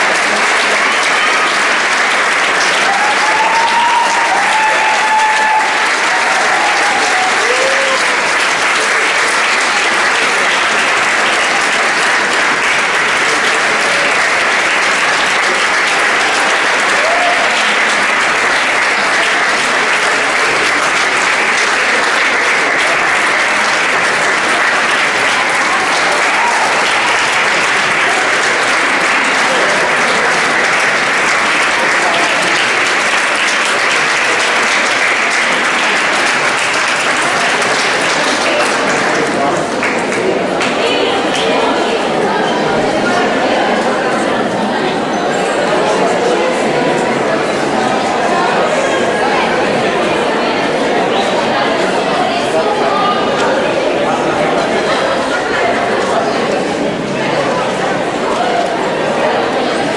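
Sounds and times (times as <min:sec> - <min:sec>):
audience applauding: 0:00.0 - 0:59.9.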